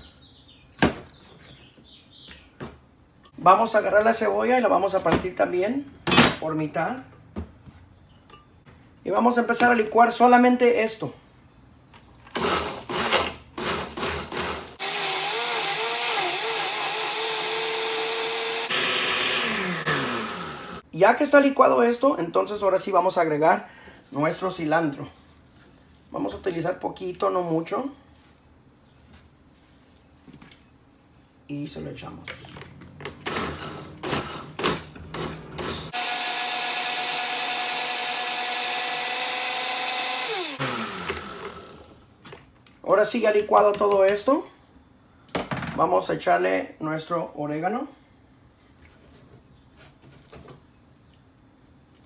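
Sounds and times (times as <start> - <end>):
blender chopping vegetables: 12.4 - 20.8, 33.3 - 41.9.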